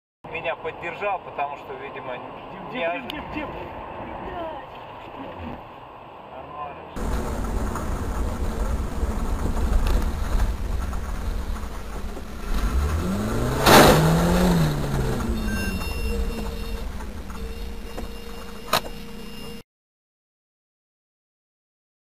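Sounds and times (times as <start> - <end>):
road vehicle rumble: 0.3 - 19.4
vehicle rushing past: 7.0 - 17.9.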